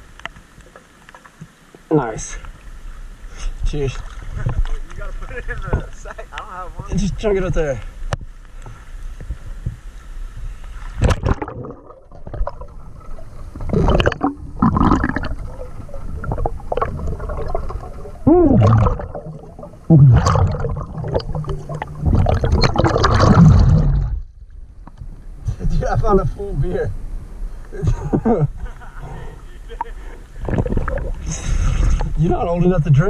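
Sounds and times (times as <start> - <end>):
water gurgling underwater: 11.0 - 24.6, 29.8 - 32.2.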